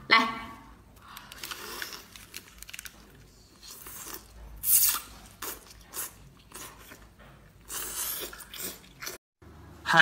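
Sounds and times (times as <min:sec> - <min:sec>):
wet bites and slurps: 0:03.6 - 0:09.2.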